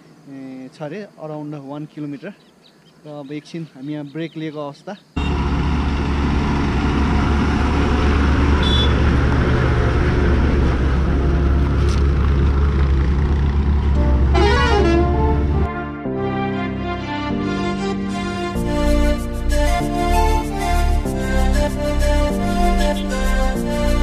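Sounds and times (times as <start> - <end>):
vehicle horn: 5.2 - 5.6, 8.5 - 9.3, 14.0 - 17.0
heavy vehicle engine humming: 5.2 - 15.8, 17.8 - 24.0
music: 14.0 - 24.0.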